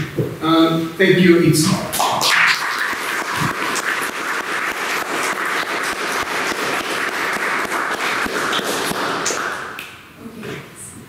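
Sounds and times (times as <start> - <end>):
audience applauding: 2.0 - 9.8.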